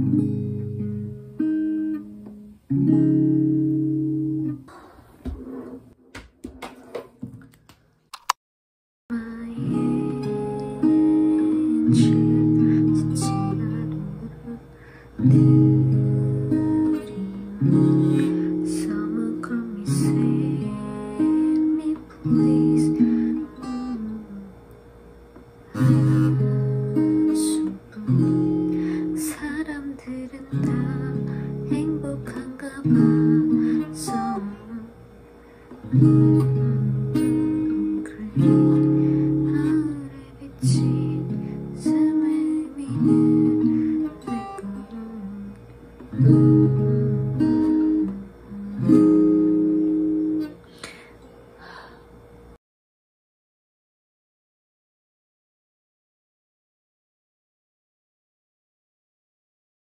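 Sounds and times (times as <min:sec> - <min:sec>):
acoustic guitar strummed chords: 0:00.0 - 0:04.6, 0:09.4 - 0:24.2, 0:25.7 - 0:34.9, 0:35.6 - 0:50.6
woman singing: 0:09.1 - 0:14.7, 0:15.3 - 0:24.5, 0:25.8 - 0:35.0, 0:36.0 - 0:46.4.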